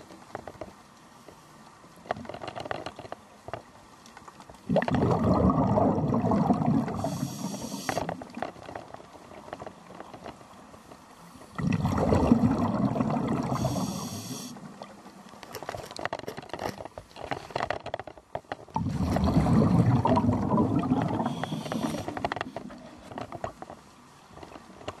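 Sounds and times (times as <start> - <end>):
exhaled bubbles rushing underwater: 4.6 - 8.0, 11.5 - 14.9, 18.8 - 22.2
regulator whistling hiss: 13.6 - 14.5.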